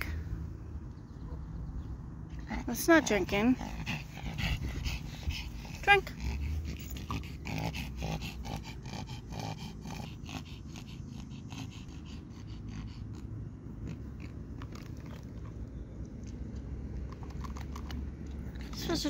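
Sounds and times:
dog sniffing and snorting: 2.3 - 16.3.

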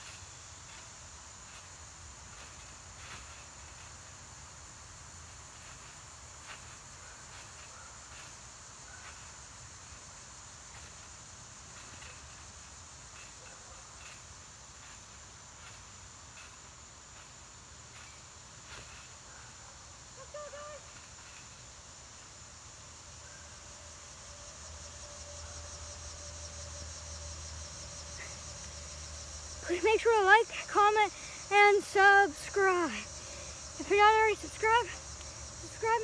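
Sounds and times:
trampoline thumps: 0.0 - 19.6
crickets chirping: 0.0 - 36.0.

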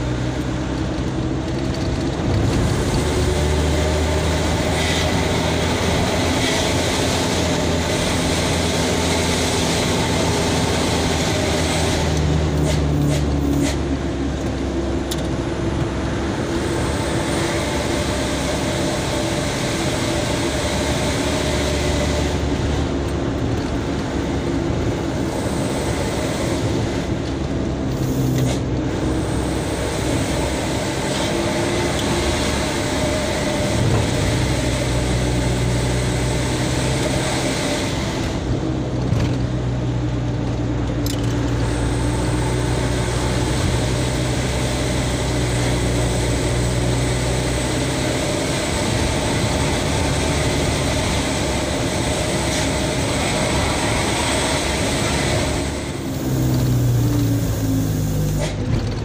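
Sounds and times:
road noise: 0.0 - 59.0
truck engine running: 0.0 - 59.0.

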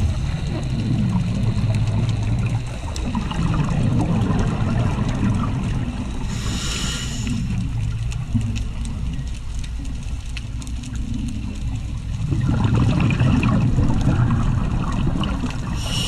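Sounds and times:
scuba regulator bubbling exhalation: 0.0 - 8.3, 11.0 - 16.0
hissing inhalation: 6.2 - 7.6, 15.8 - 16.0.

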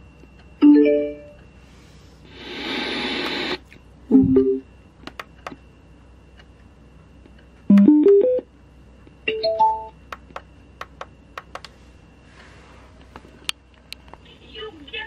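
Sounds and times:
electronic prompt chimes: 0.6 - 1.4.

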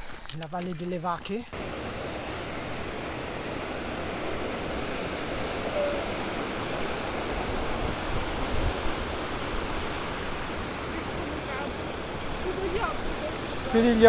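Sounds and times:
stream rushing over rocks: 1.5 - 14.0.

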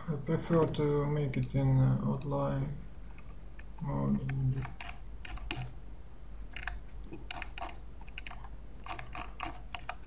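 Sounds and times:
faint steady low hum: 0.0 - 10.0
computer keyboard keys clicking: 0.5 - 2.3, 3.6 - 5.7, 6.5 - 10.0.

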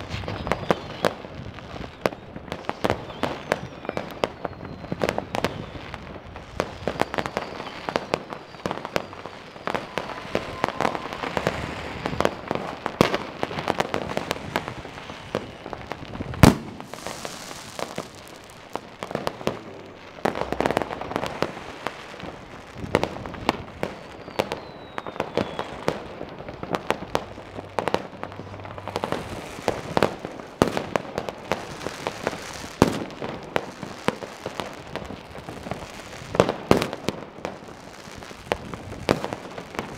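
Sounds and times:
falling firework whistle: 0.0 - 39.9
fireworks rocket bursts: 0.0 - 39.9
firecracker bangs: 6.5 - 37.6.

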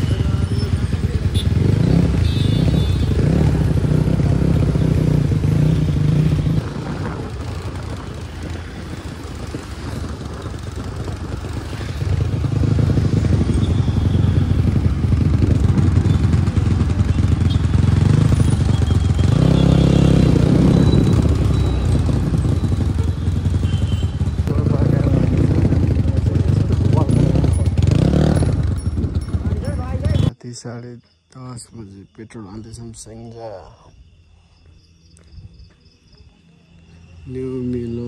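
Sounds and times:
dirt bike engine running: 0.0 - 30.3.

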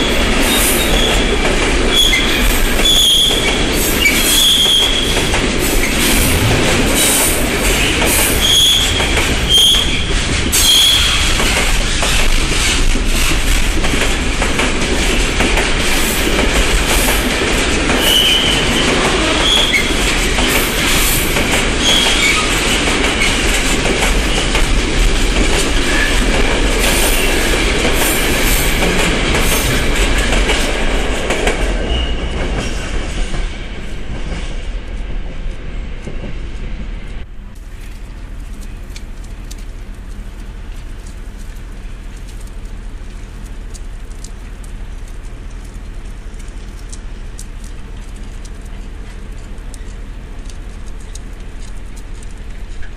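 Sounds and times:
freight train wagons clattering: 0.0 - 52.9
high wheel squeals: 1.9 - 5.2, 7.7 - 11.4, 18.0 - 20.1, 31.9 - 32.4.

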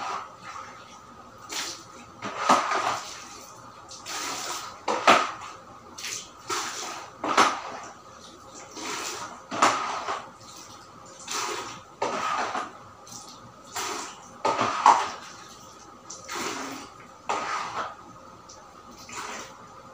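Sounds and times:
floor cleaning swish on tiles: 13.8 - 15.2, 16.3 - 17.9.

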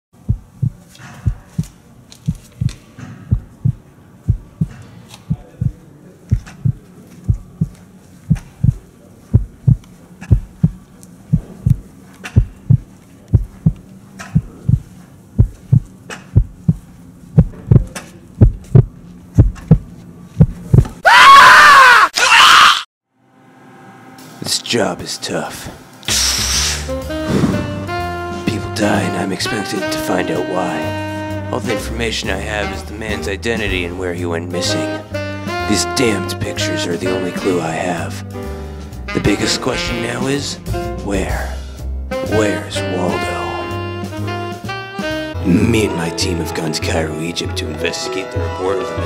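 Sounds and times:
faint hum: 0.2 - 21.0
heartbeat thumps: 0.2 - 21.0, 27.2 - 28.2
loud scream: 21.0 - 22.9.

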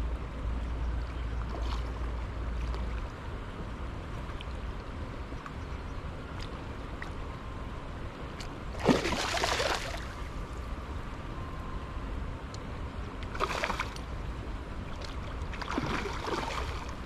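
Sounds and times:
low water background: 0.0 - 17.0
fish splashing at water surface: 8.8 - 10.1, 13.3 - 14.0.

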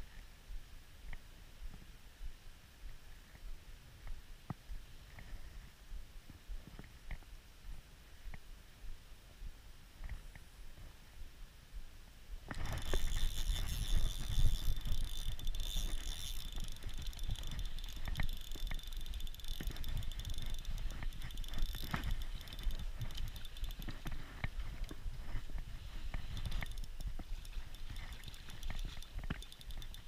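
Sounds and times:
fishing reel whirring and clicking: 12.5 - 30.0.

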